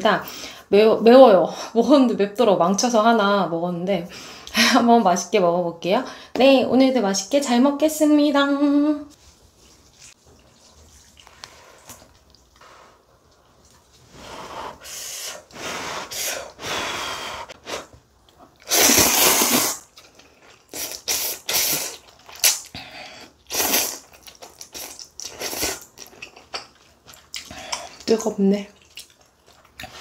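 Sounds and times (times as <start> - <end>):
slurping noodles: 18.6 - 22.7, 23.5 - 25.9.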